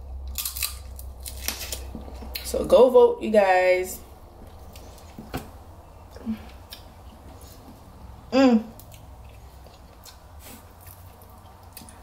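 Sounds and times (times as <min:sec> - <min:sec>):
clicks and mouth sounds eating: 0:08.8 - 0:12.0.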